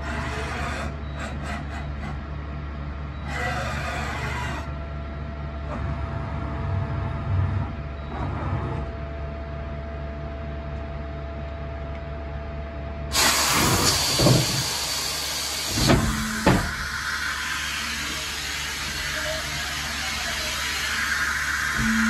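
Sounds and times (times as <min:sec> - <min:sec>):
machine hum with thin whine: 0:00.0 - 0:22.0
loud hiss: 0:13.1 - 0:22.0.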